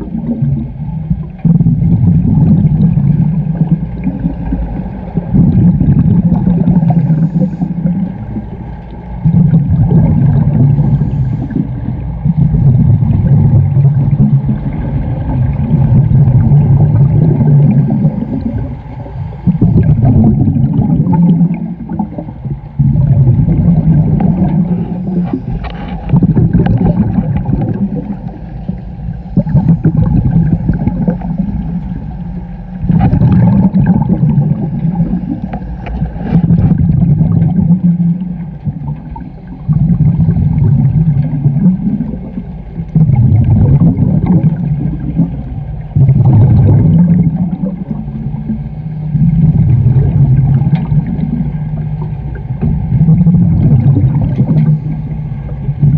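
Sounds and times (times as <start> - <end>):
exhaust bubbles underwater: 0.0 - 55.9
diver breathing through regulator: 6.6 - 8.3, 10.5 - 12.0.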